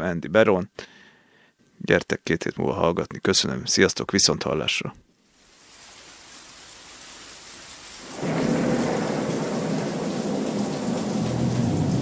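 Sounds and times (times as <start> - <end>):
rain hiss: 5.3 - 12.0
low thunder rumble: 8.0 - 12.0.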